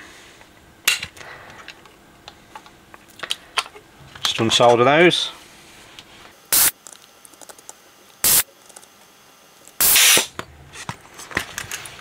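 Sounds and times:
desoldering gun suction hisses: 0:06.5 - 0:06.8, 0:08.2 - 0:08.4, 0:09.8 - 0:10.3.

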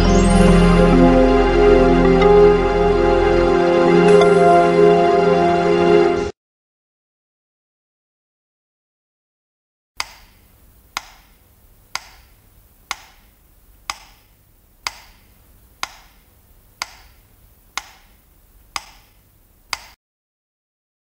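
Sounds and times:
metronome ticking: 0:11.9 - 0:12.3, 0:13.9 - 0:16.2, 0:18.8 - 0:19.1.

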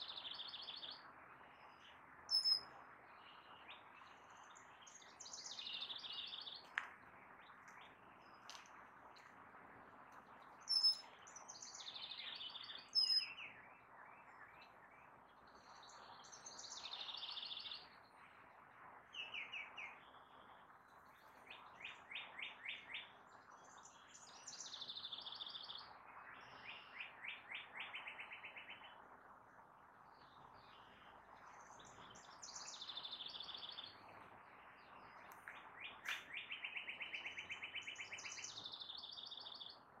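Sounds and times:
faint background hiss: 0:00.0 - 0:40.0
songbirds singing: 0:00.0 - 0:40.0
sharp loud bird chirps: 0:02.3 - 0:02.6
bird trills: 0:02.3 - 0:02.7, 0:10.7 - 0:11.1, 0:11.7 - 0:13.4.

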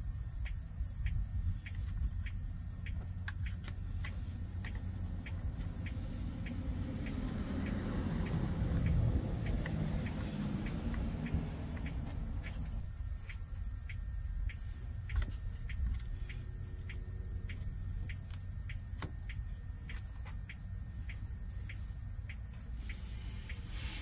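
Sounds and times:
low rumble: 0:00.0 - 0:18.1
faint regular ticks: 0:00.0 - 0:24.0
high insect drone: 0:00.0 - 0:24.0.

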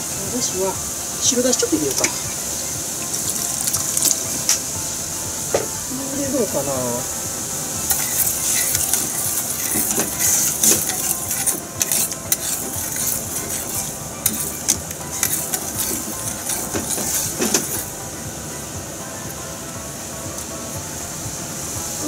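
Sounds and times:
steady hiss: 0:00.0 - 0:22.0
metal ladle clinking against pan: 0:07.9 - 0:17.9.

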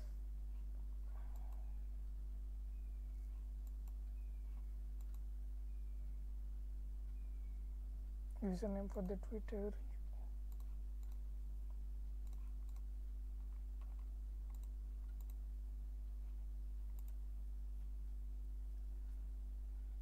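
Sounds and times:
steady low hum: 0:00.0 - 0:20.0
computer mouse clicking: 0:01.3 - 0:01.6, 0:03.6 - 0:05.2, 0:10.5 - 0:11.2, 0:12.2 - 0:15.4, 0:16.9 - 0:17.2.

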